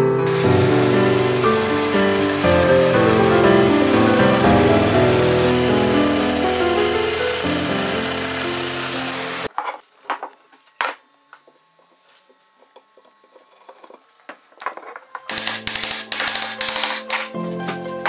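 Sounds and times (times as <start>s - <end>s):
music: 0.0s - 9.5s, 15.0s - 18.0s
power joiner cutting wood: 0.0s - 9.5s
wooden parts knocking: 14.6s - 17.4s.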